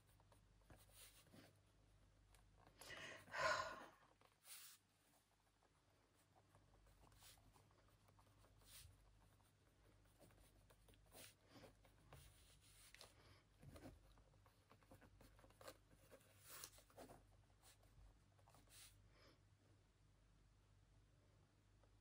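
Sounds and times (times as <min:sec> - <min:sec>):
pen scratching on paper: 0:00.0 - 0:02.2, 0:04.2 - 0:19.0.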